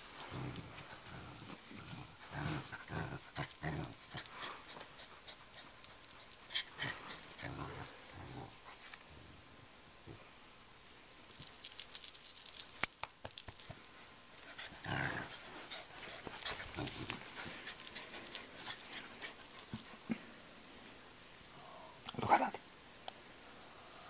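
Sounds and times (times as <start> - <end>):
dog growling: 0.2 - 8.6, 14.6 - 20.3
rope toy rattling clicks: 3.3 - 7.3.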